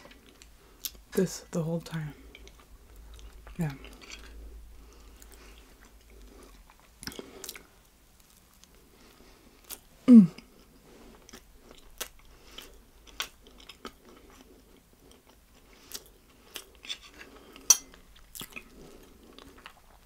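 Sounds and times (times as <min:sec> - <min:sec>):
chewing soft cake: 0:00.0 - 0:20.0
person humming mm: 0:10.1 - 0:10.5.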